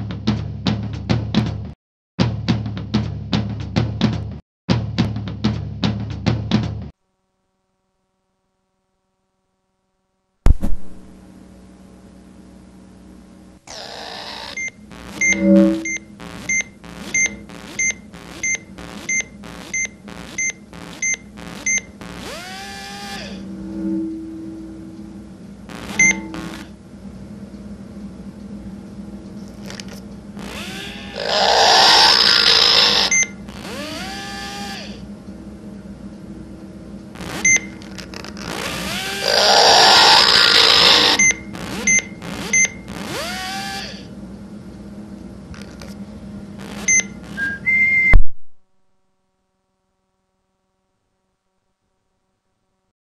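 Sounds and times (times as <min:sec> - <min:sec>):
low steady hum: 0:07.0 - 0:31.6
rising whine: 0:13.6 - 0:44.1, 0:46.6 - 0:48.6
short electronic beeps: 0:14.5 - 0:21.9, 0:25.8 - 0:26.6, 0:37.4 - 0:37.8, 0:41.2 - 0:42.8, 0:46.8 - 0:48.3
brief low tone: 0:14.6 - 0:17.4, 0:23.3 - 0:26.7, 0:46.9 - 0:48.6.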